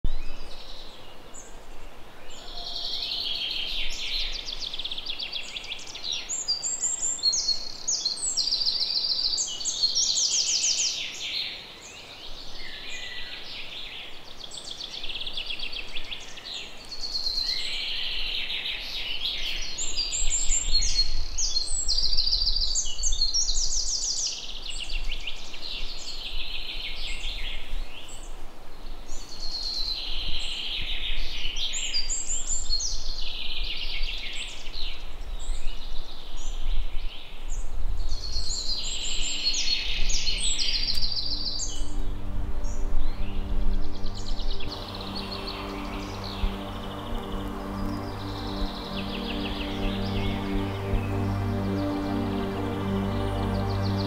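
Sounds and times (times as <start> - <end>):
songbirds singing: 0.0 - 54.0
faint low rumble: 40.4 - 54.0.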